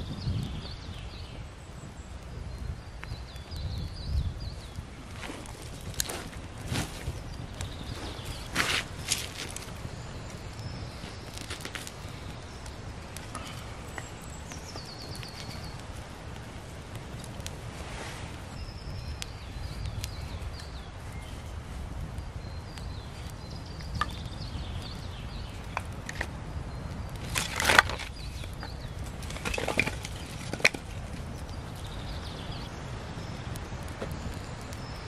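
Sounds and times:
twig fire crackling: 0.0s - 35.0s.

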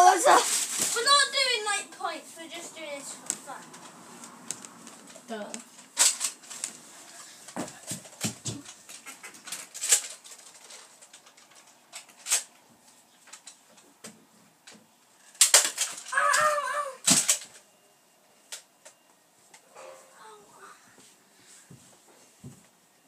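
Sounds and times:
children moving about: 0.0s - 13.9s
toy blasters clicking: 15.4s - 17.6s.

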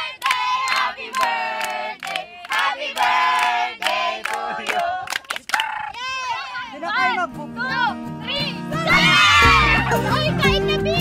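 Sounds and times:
young people chanting together: 0.0s - 5.1s
hand claps: 0.2s - 5.7s.

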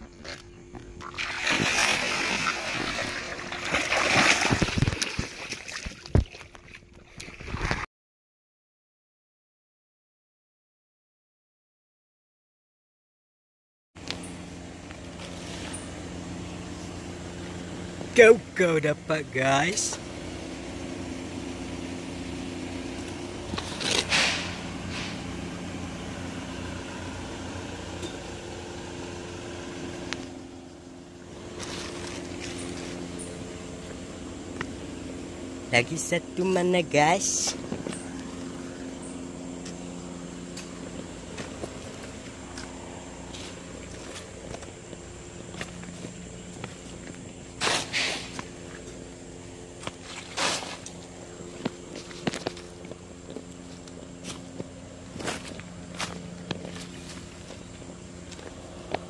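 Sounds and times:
low machine hum: 0.0s - 7.8s, 14.0s - 59.0s
water splashing: 1.0s - 7.8s.

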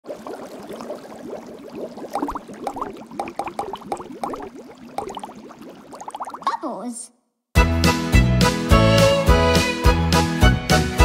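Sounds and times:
cartoon bubbling bloops: 0.0s - 6.9s.

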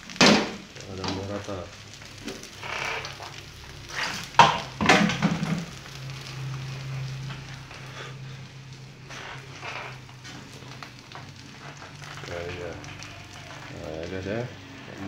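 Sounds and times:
omelette sizzling in oil: 0.0s - 15.0s.

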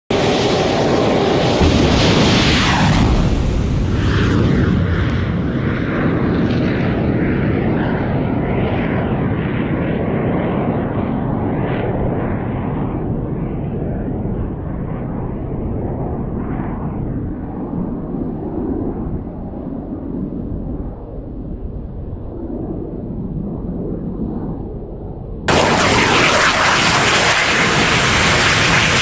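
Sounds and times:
rocket launch roar: 0.1s - 7.0s, 25.5s - 29.0s.

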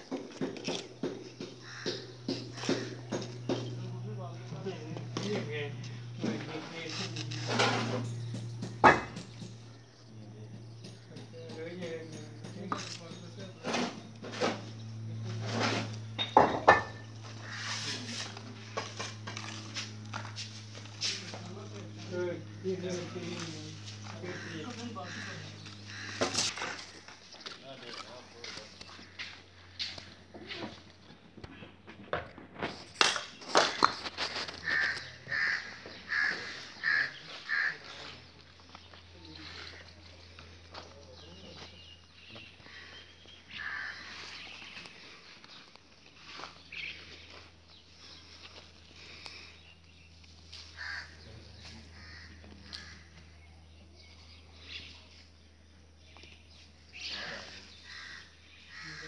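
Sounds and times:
crow cawing: 1.0s - 3.1s, 17.3s - 18.0s, 24.0s - 27.2s, 28.9s - 29.4s, 34.6s - 38.2s, 42.6s - 44.5s, 50.6s - 53.4s, 57.0s - 59.0s.

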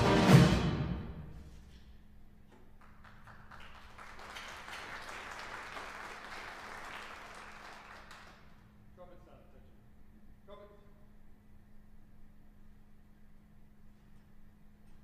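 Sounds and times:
audience applauding: 2.7s - 8.6s.

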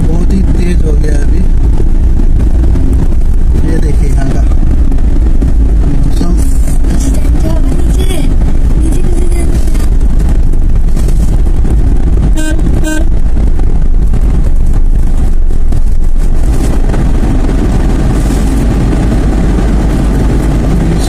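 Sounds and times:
moving vehicle low rumble: 0.0s - 21.0s
vehicle horn toots: 12.4s - 13.1s.

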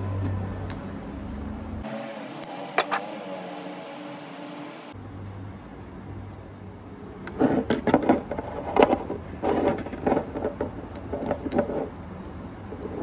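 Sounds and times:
steady low hum: 1.6s - 7.2s
objects being handled: 1.9s - 4.6s, 7.3s - 13.0s.

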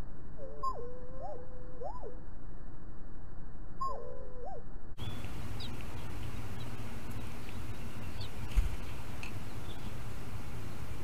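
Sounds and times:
steady low hum: 0.0s - 3.9s, 4.6s - 11.0s
faint high chirps: 3.8s - 10.0s
sliding bird calls: 5.0s - 10.1s.

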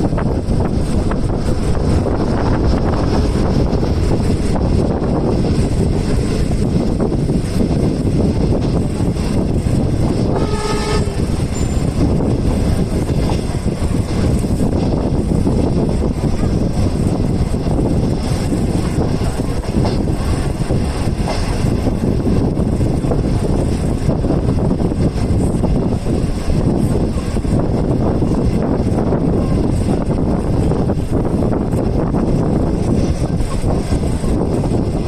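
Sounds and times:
train wheels rumbling on rails: 0.0s - 35.0s
wind rushing: 0.0s - 35.0s
train horn blast: 10.3s - 11.8s.

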